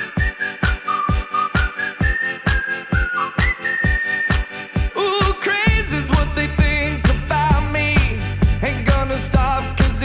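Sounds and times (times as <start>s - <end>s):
pop music with drum beat: 0.0s - 10.0s
deep bass line: 5.2s - 10.0s.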